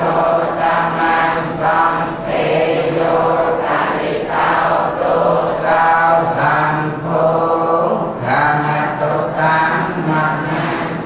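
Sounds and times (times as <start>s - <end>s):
group of voices chanting: 0.0s - 7.3s.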